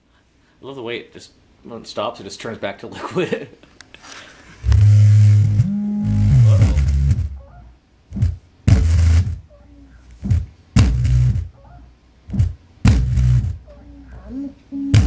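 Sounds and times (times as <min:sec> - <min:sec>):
subwoofer bass beat with buzz: 0:04.6 - 0:07.4, 0:08.1 - 0:09.5, 0:10.2 - 0:11.5, 0:12.3 - 0:13.6.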